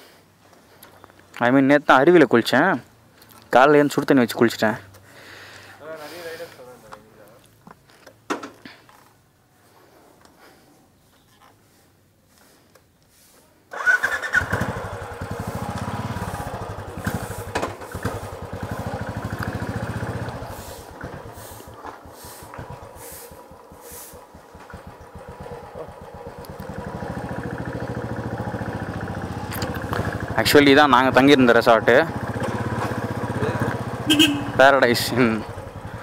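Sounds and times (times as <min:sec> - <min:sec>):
motorcycle engine starting and running: 0:13.7 - 0:36.0.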